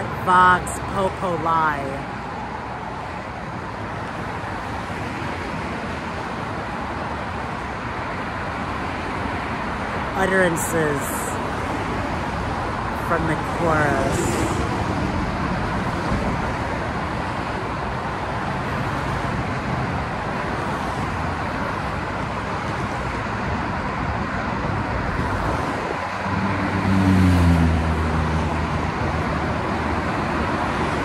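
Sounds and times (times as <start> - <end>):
freeway traffic roar: 0.0 - 31.0
passing vehicle engine drone: 24.4 - 31.0.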